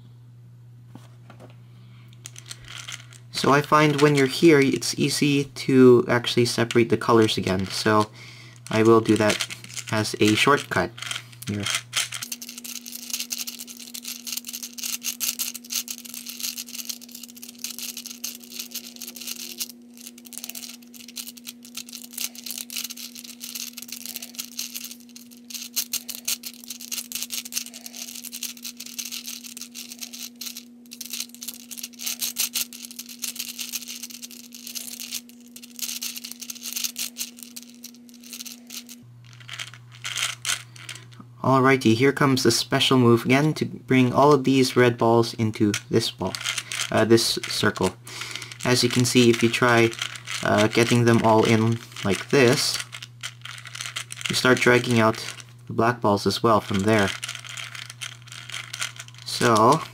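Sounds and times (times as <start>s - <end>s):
steady low hum: 0.0s - 59.9s
plastic balls clicking and rattling: 2.2s - 41.2s, 44.1s - 59.9s.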